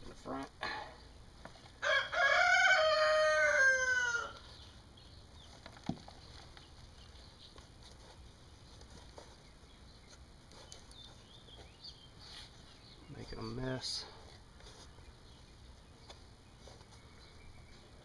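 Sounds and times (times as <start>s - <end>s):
rooster crowing: 1.8s - 4.4s.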